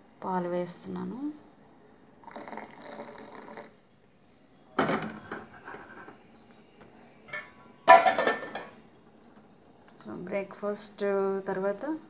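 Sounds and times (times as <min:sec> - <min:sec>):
metallic clang: 0:07.3 - 0:08.8
steel vessels clanking: 0:07.3 - 0:08.8.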